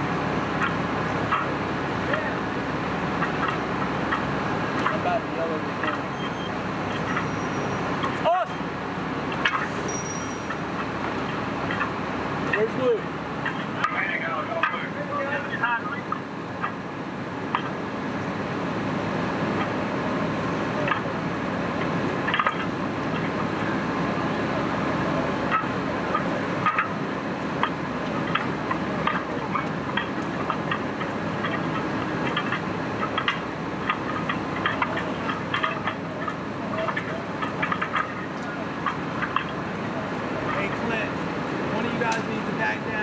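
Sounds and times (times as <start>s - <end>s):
truck engine running: 0.0s - 43.0s
crackles and clicks: 19.4s - 41.3s.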